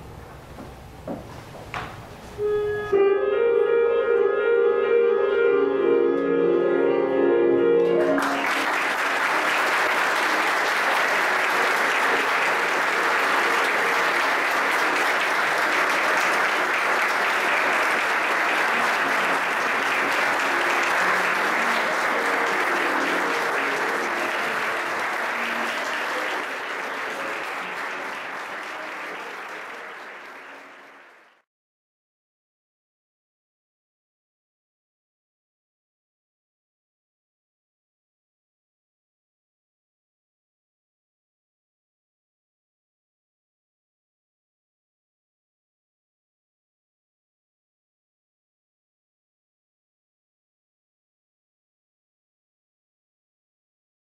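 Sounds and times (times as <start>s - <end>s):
music playing: 2.4s - 30.7s
audience applause: 7.8s - 31.4s.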